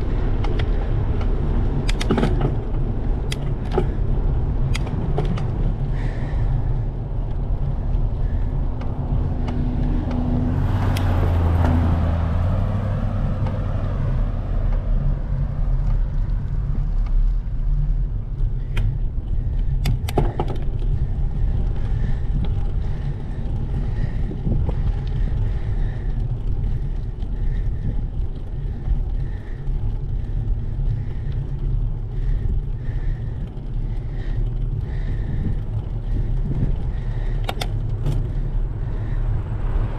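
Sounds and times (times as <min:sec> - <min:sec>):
motor vehicle passing: 0:00.0 - 0:19.6, 0:20.6 - 0:39.9
road noise: 0:00.0 - 0:39.9
wind rushing over microphone: 0:00.0 - 0:39.9
sharp clicks: 0:00.4 - 0:02.5, 0:04.6 - 0:05.5, 0:37.3 - 0:38.3.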